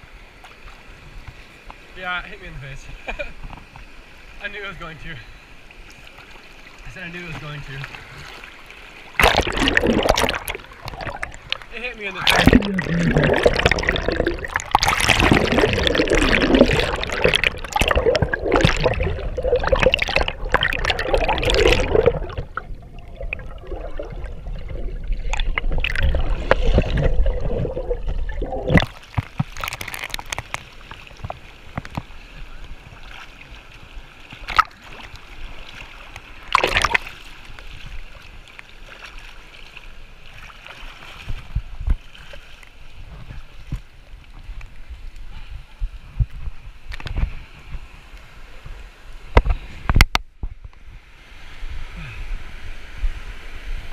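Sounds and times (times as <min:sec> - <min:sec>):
waterfall and rapids rushing: 0:00.0 - 0:39.4
muffled underwater splashing: 0:05.9 - 0:47.9.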